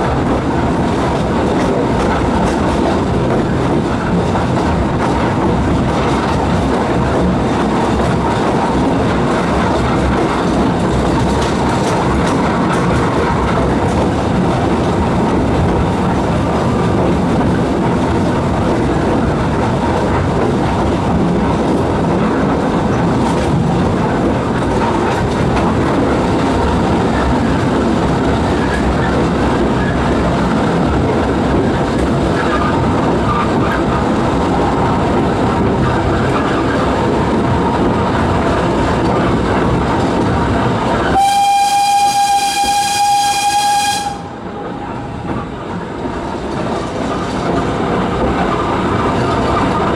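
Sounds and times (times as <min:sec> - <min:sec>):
train wheels rattling: 0:00.0 - 0:49.9
steam whistle: 0:41.1 - 0:44.4.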